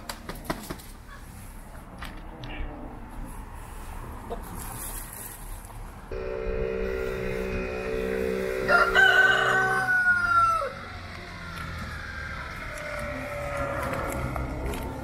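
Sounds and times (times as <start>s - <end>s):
steady hum: 6.1s - 9.8s
rooster crowing: 8.2s - 11.0s.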